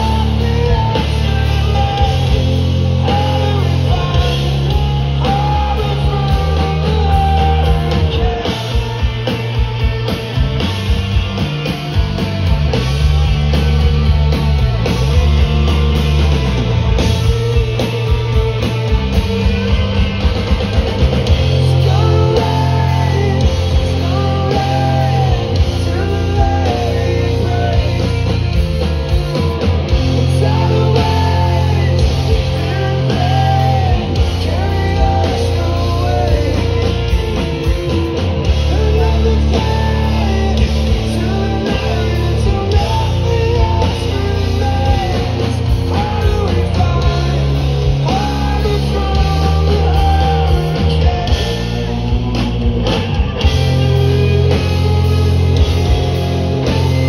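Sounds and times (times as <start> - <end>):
person singing: 0.0 - 10.2, 21.2 - 52.4
bass guitar: 0.0 - 57.0
distorted electric guitars: 0.0 - 57.0
drums: 0.0 - 57.0.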